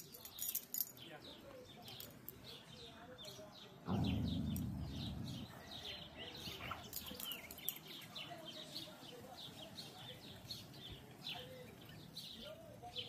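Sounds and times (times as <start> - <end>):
small birds chirping: 0.0 - 13.0
low rumble: 3.9 - 6.5.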